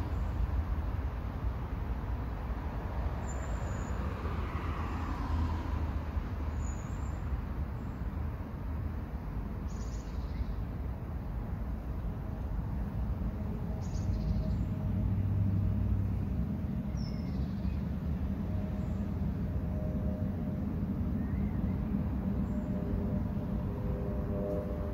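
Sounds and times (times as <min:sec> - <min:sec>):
low rumble of road traffic: 0:00.0 - 0:24.9
vehicle passing: 0:03.5 - 0:06.6, 0:13.2 - 0:24.9.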